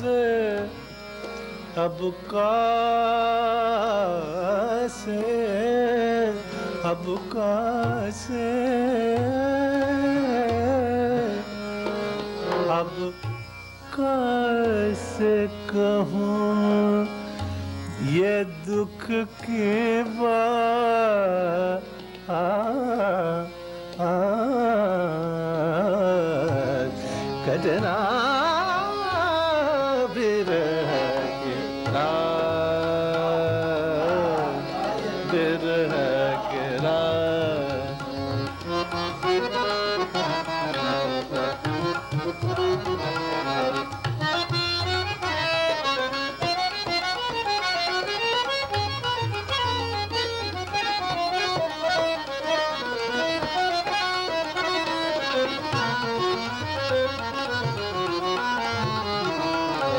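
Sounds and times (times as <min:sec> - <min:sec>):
man singing classical vocal: 0:00.0 - 0:00.9, 0:01.7 - 0:11.5, 0:12.5 - 0:13.2, 0:13.9 - 0:45.9, 0:50.7 - 0:59.9
harmonium: 0:00.0 - 0:59.9
tabla rhythm: 0:00.0 - 0:59.9.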